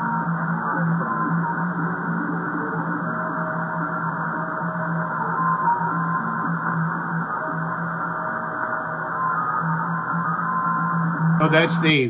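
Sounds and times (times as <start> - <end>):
thin music over radio: 11.3 - 12.0.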